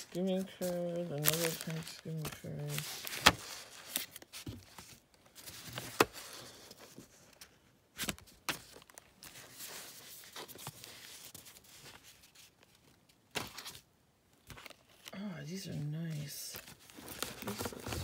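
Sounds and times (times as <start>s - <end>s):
paper rustling: 0.0s - 15.1s, 15.7s - 18.0s.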